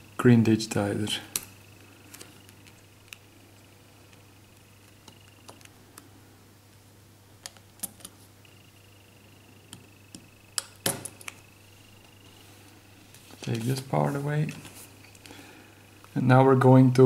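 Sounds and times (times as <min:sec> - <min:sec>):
faint high whine: 0:00.0 - 0:17.0
fingers clicking phone parts: 0:04.8 - 0:05.7.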